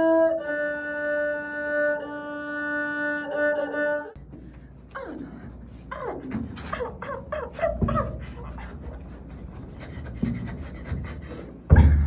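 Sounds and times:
person panting: 0:06.9 - 0:12.0.

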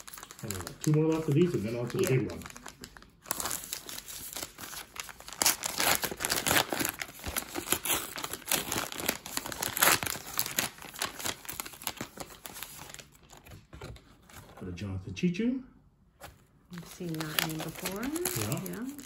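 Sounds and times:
wrapper tearing and crinkling: 0:00.0 - 0:13.6, 0:16.8 - 0:19.0.

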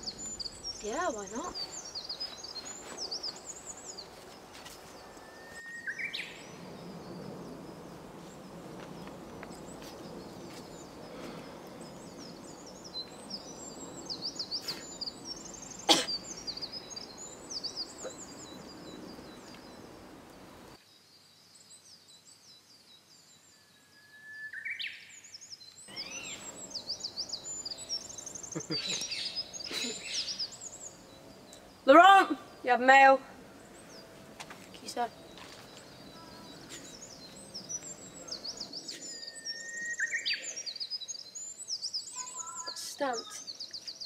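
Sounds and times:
small birds chirping: 0:00.0 - 0:23.9, 0:24.5 - 0:44.0
background hiss: 0:00.0 - 0:44.0
rising whistled call: 0:05.0 - 0:06.6, 0:25.9 - 0:30.9, 0:36.2 - 0:41.0.

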